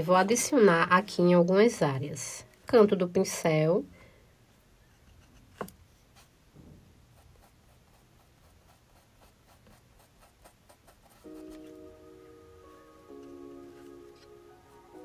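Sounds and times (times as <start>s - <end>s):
paintbrush strokes: 4.8s - 6.4s, 7.0s - 12.0s, 12.6s - 15.0s.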